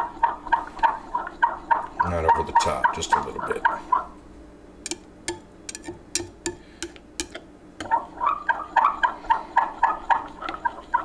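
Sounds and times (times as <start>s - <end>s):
spoon tapping against glass: 4.8s - 7.9s.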